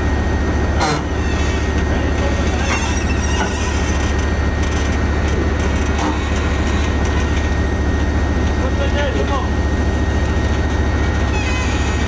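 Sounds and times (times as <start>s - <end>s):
tank diesel engine running: 0.0s - 12.0s
short squeaks: 0.8s - 5.0s, 5.6s - 7.5s, 11.2s - 12.0s.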